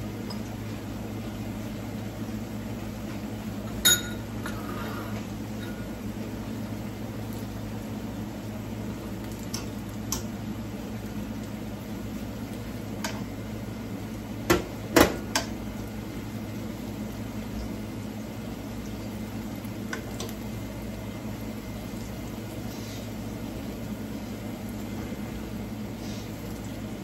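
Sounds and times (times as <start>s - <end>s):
plantain frying in oil: 0.0s - 27.0s.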